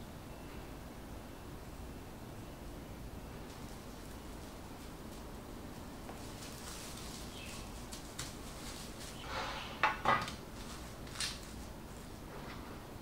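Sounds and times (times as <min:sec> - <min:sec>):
cling film crinkling: 0:03.5 - 0:09.2, 0:10.2 - 0:12.2.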